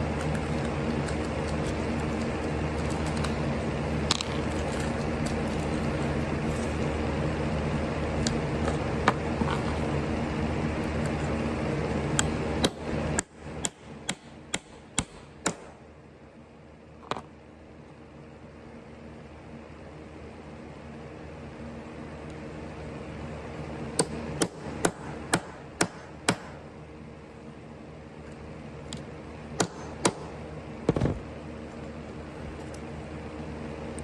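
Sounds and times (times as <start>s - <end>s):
motor humming: 0.0s - 15.9s.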